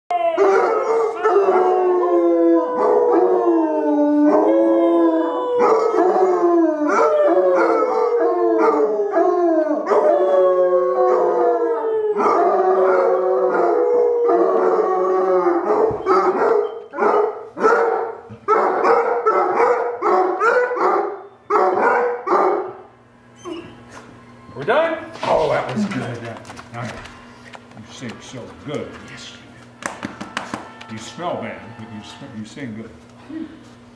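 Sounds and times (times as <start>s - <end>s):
man howling: 0.1s - 15.9s, 30.3s - 32.7s
dogs howling: 0.1s - 27.4s, 28.3s - 32.8s.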